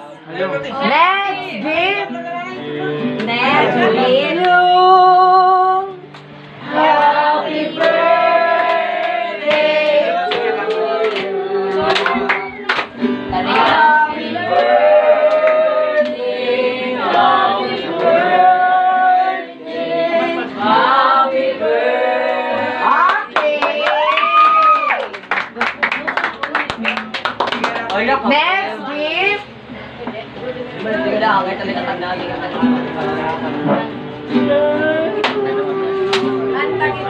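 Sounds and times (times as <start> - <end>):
music with singing voices: 1.6 - 8.9, 9.5 - 23.1, 32.5 - 37.0.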